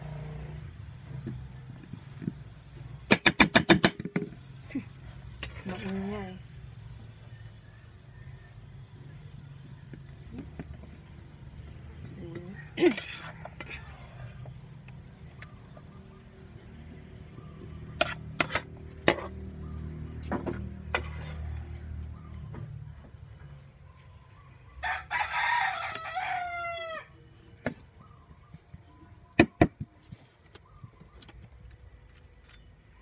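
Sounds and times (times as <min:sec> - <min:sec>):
rooster crowing: 0:24.8 - 0:27.2.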